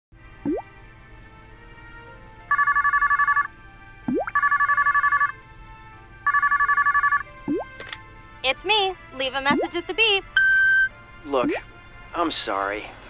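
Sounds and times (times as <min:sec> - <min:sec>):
cordless phone ringing: 0:02.5 - 0:03.5, 0:04.4 - 0:05.4, 0:06.2 - 0:07.3, 0:10.4 - 0:10.9.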